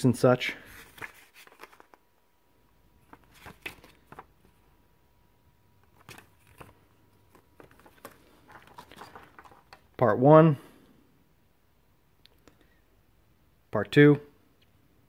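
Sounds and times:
booklet pages turning: 0.6s - 2.0s, 3.0s - 4.7s, 5.8s - 10.0s
plastic packaging handled: 0.7s - 2.1s, 3.0s - 4.6s, 5.8s - 10.0s.

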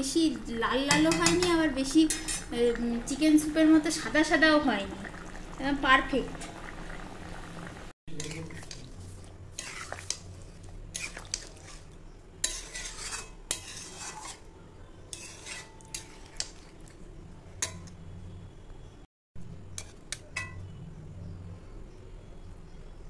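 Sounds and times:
metal spatula scraping a pan: 0.8s - 2.6s, 8.1s - 16.7s, 19.7s - 20.7s
spatula clinking against pan: 20.1s - 20.6s.

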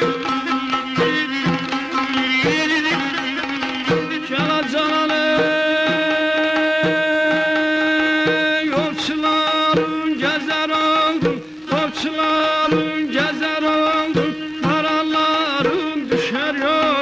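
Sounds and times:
ornamented folk melody: 0.0s - 17.0s
steady drum beat: 0.0s - 17.0s.

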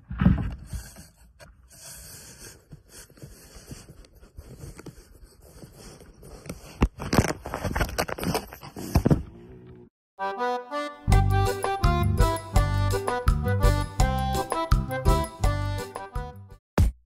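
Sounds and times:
cat rubbing against phone: 0.7s - 6.8s.

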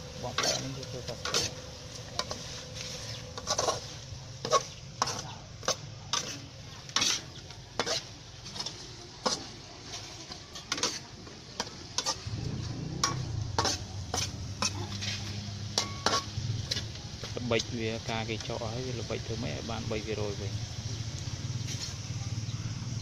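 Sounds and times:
food sizzling in a pan: 0.0s - 23.0s
metal spatula scraping a wok: 0.1s - 17.4s, 21.6s - 22.2s.

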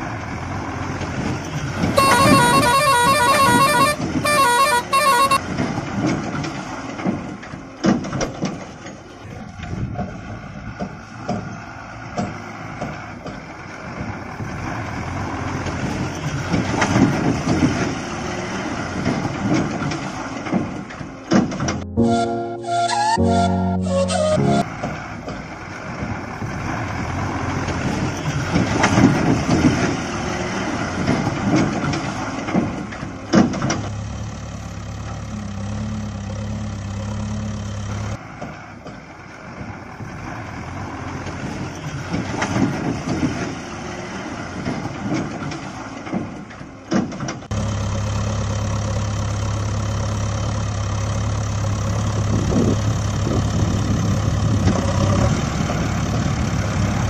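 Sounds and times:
gravel crunching and rattling: 5.4s - 21.8s, 24.7s - 37.0s, 37.8s - 47.6s.

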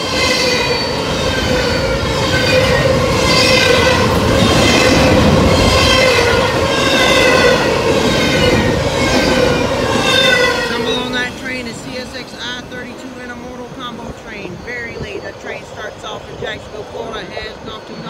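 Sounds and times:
high wavering wheel squeal: 0.0s - 11.3s
rumble of wheels on rail: 0.0s - 18.0s.

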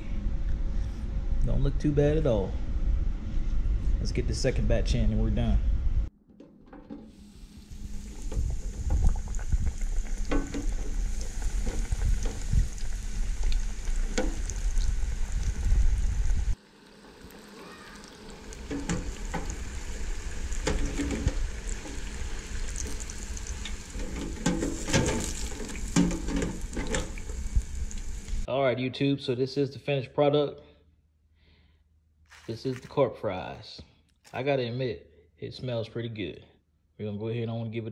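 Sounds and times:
fish deep-frying in hot oil: 7.1s - 28.5s.

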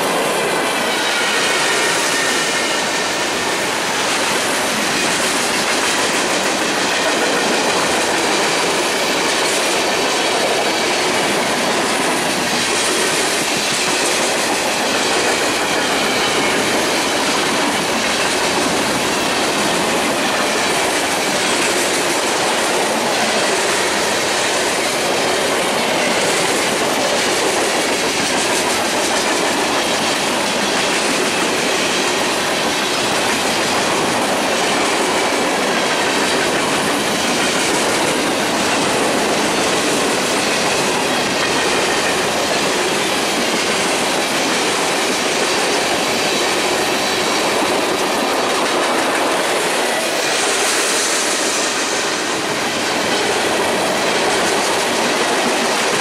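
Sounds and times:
steel wheels running on rails: 0.0s - 56.0s
high hiss: 45.5s - 54.5s.

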